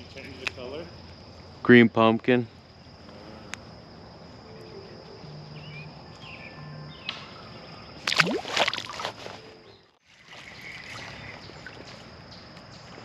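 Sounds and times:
water splash: 8.0 - 9.4.

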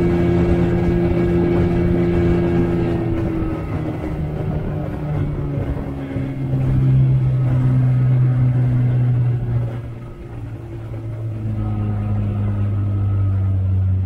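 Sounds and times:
outboard motor droning: 0.0 - 14.0.

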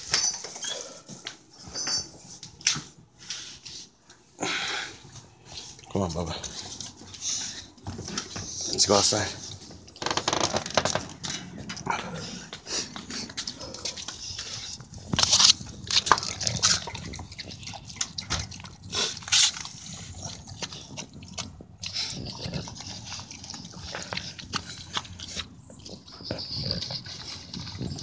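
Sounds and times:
dog chewing wet food: 11.1 - 28.0.

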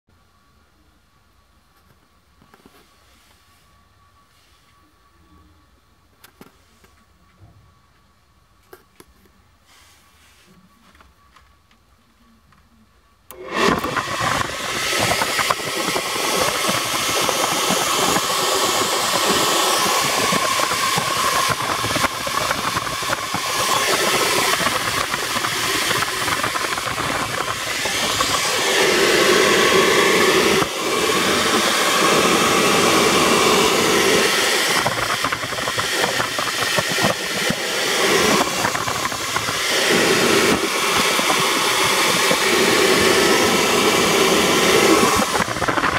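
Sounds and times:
heater fan blowing air: 13.2 - 45.9.

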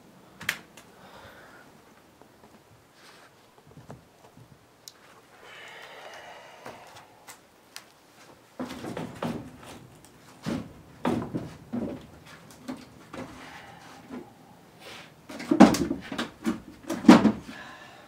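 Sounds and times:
footsteps on wooden boards: 8.2 - 14.3
wooden window sashes knocking: 8.6 - 13.4, 15.3 - 17.4.

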